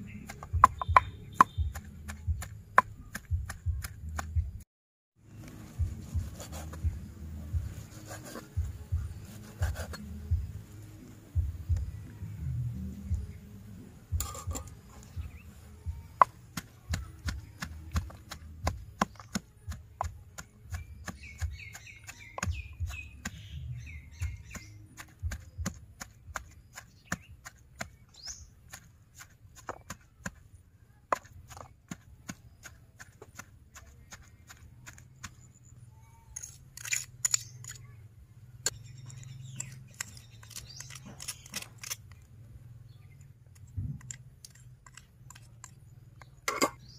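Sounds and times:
pestle pounding in stone mortar: 0:00.3 - 0:04.4, 0:16.2 - 0:23.4.

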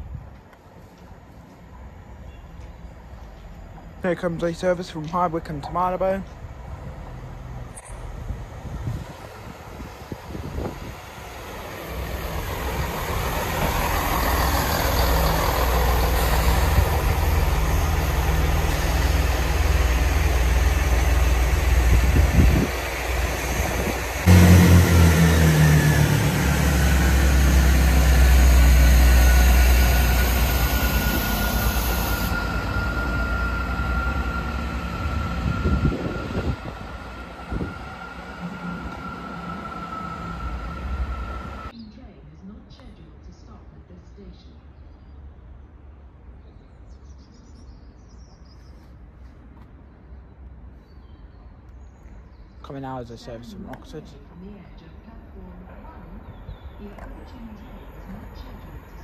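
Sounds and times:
train whine: 0:00.0 - 0:41.8, 0:54.8 - 0:59.0
diesel train engines rumbling: 0:00.0 - 0:42.6, 0:52.7 - 0:59.0.

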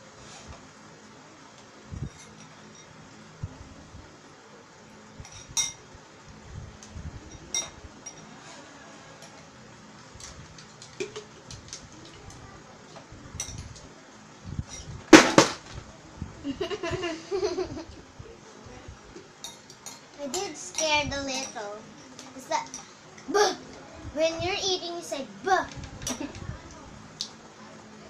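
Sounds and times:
spoons clinking against bowls: 0:02.2 - 0:02.9, 0:05.2 - 0:05.8, 0:07.4 - 0:08.3, 0:19.4 - 0:21.6
child's voice: 0:20.2 - 0:26.8.

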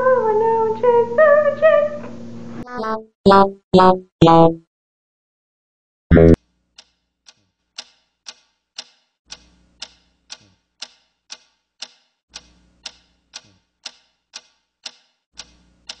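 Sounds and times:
clock ticking: 0:07.8 - 0:16.0.

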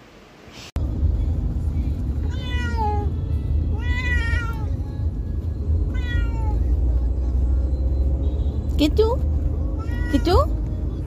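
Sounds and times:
cat meowing: 0:02.2 - 0:03.1, 0:03.7 - 0:04.7, 0:05.9 - 0:06.7, 0:09.8 - 0:10.5.

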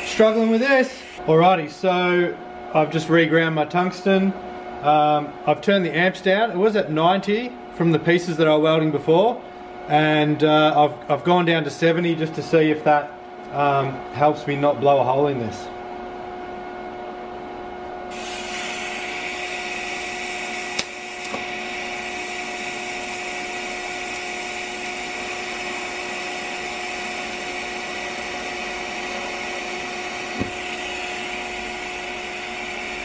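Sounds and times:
welding arc hissing: 0:00.0 - 0:01.2, 0:18.1 - 0:33.0.

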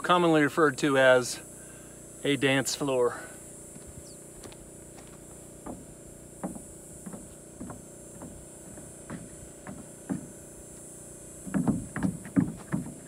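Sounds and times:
footsteps on plywood floor: 0:03.7 - 0:13.0
stomping dance on floor: 0:11.4 - 0:13.0.

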